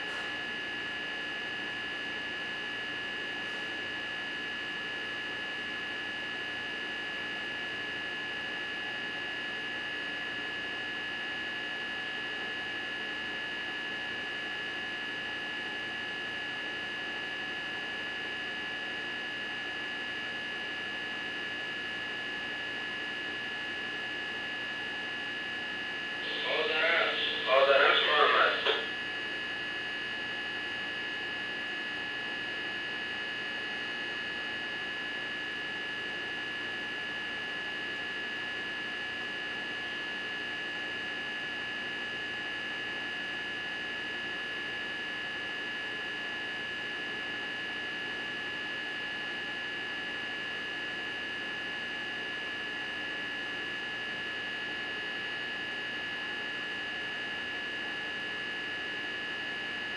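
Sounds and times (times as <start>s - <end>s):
steady hum: 26.0s - 29.3s.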